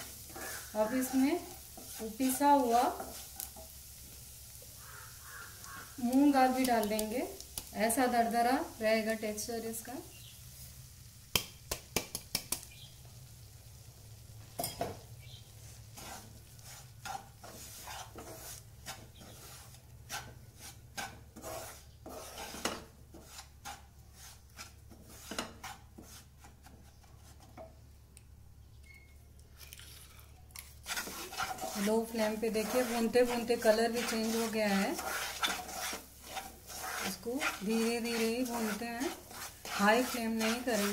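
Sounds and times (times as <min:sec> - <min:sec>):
wooden spatula scraping pan: 0:00.0 - 0:04.1, 0:15.6 - 0:27.7, 0:30.6 - 0:40.9
faint ghee sizzle: 0:00.0 - 0:40.9.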